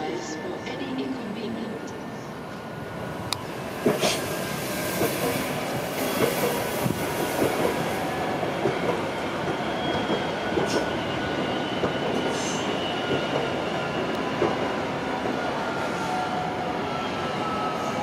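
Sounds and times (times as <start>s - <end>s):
train wheels clicking over rail joints: 3.8s - 4.2s
faint high wheel squeal: 9.5s - 14.1s, 15.7s - 18.0s.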